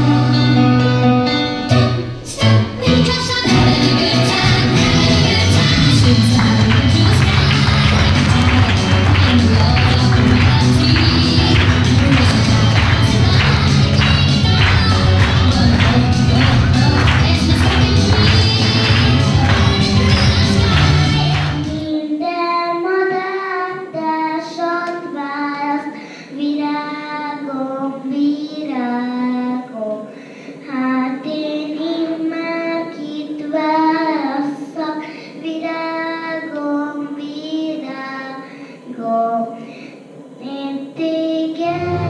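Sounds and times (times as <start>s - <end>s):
loud music with heavy bass: 1.6s - 21.8s
girl singing into a microphone: 2.2s - 42.0s.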